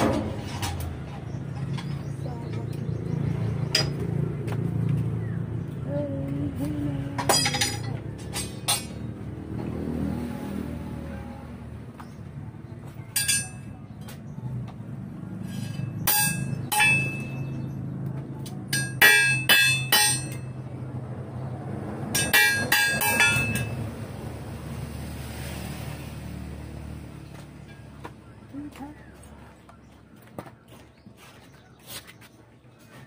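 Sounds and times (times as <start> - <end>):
hammer striking steel: 13.2 - 13.7, 15.5 - 17.6, 18.7 - 20.6, 22.1 - 23.8.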